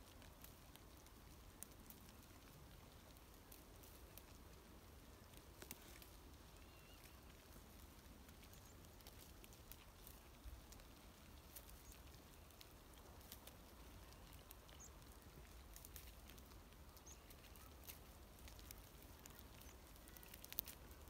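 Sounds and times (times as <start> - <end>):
soft ticks: 5.3 - 21.0.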